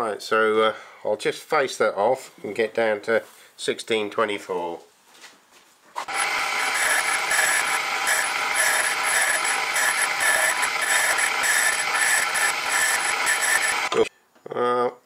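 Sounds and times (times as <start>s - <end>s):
metal lathe whirring: 6.0s - 14.1s.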